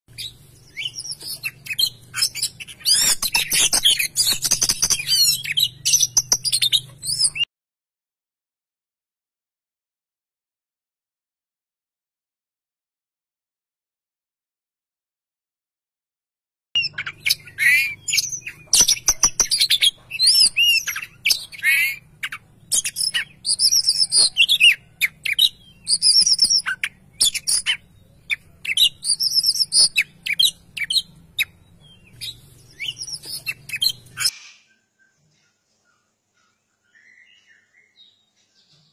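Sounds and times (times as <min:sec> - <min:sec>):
bird singing whistled song: 0:00.1 - 0:07.5, 0:16.8 - 0:38.9.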